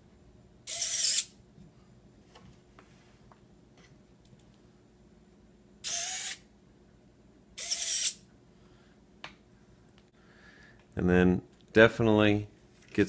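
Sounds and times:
servos whirring: 0:00.7 - 0:01.3, 0:05.8 - 0:06.4, 0:07.6 - 0:08.2.

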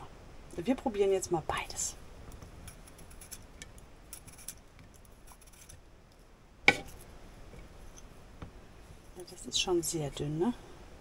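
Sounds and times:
peeler scraping potato: 0:02.7 - 0:03.5, 0:04.1 - 0:05.8.

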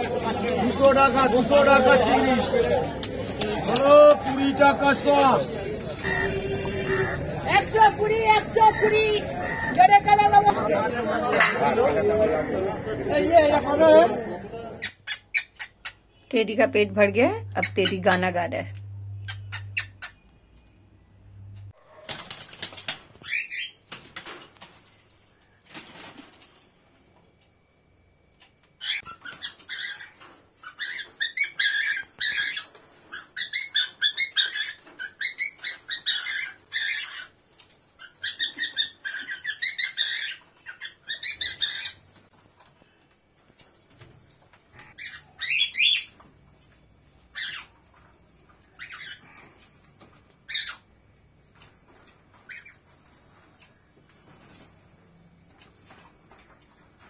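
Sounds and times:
wings flapping: 0:22.0 - 0:24.8, 0:25.6 - 0:26.6.

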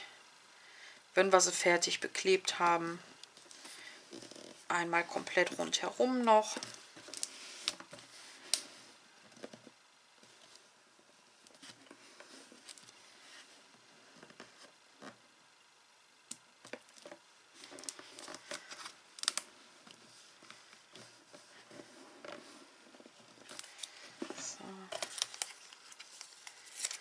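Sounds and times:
paper and card handling: 0:17.6 - 0:27.0.

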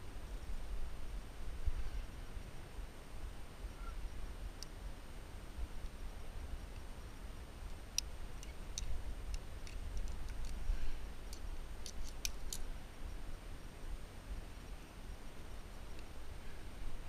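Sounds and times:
metallic carabiner clicks: 0:08.0 - 0:10.6, 0:11.3 - 0:12.7.

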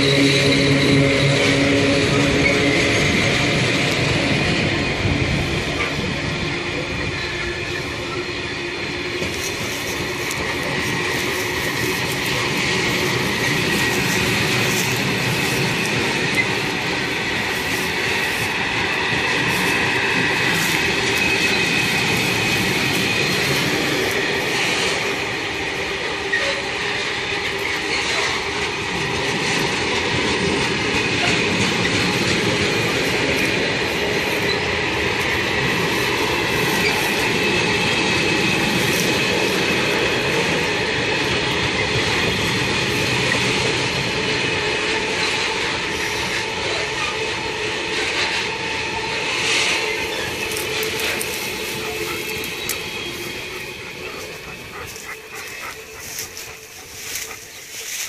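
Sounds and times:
train wheels rumbling on rail: 0:00.0 - 0:58.0
wheels squealing: 0:09.1 - 0:44.1, 0:49.2 - 0:58.0.

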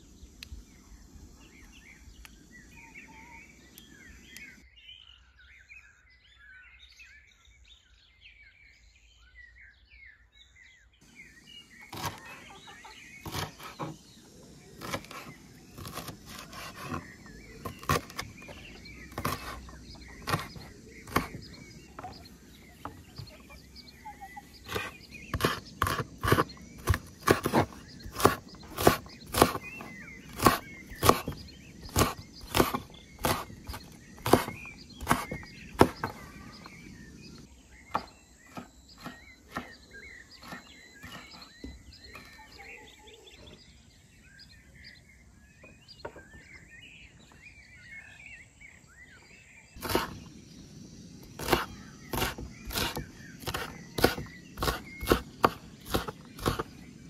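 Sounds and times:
birds chirping: 0:00.0 - 0:57.0
knife chopping on wooden board: 0:11.9 - 0:12.5, 0:13.2 - 0:14.0, 0:14.8 - 0:22.1, 0:24.7 - 0:36.2, 0:37.9 - 0:39.8, 0:40.4 - 0:41.5, 0:49.8 - 0:50.3, 0:51.2 - 0:56.8.

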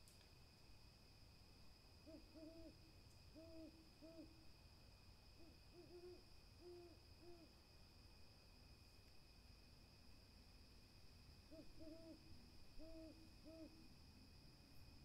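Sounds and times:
owl hooting: 0:02.0 - 0:04.4, 0:05.4 - 0:07.6, 0:11.5 - 0:13.8.

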